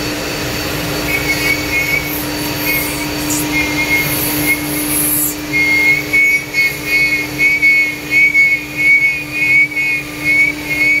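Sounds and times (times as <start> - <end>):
router spindle cutting foam: 0.0 - 10.9
high whine: 0.0 - 11.0.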